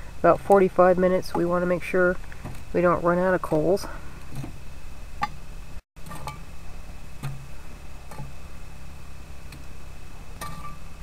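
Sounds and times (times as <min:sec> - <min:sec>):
low hum: 0:00.0 - 0:11.0
metallic ring: 0:10.4 - 0:11.0.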